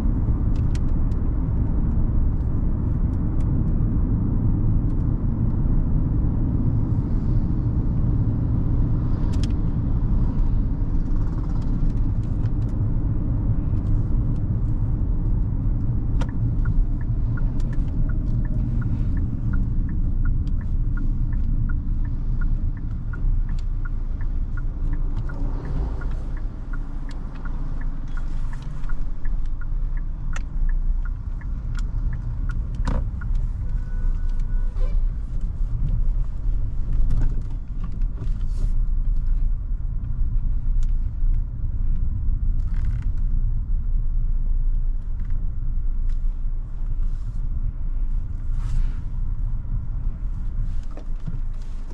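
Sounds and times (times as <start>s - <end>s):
car engine and tyres rumbling: 0.0s - 51.9s
light regular ticking: 9.3s - 34.5s.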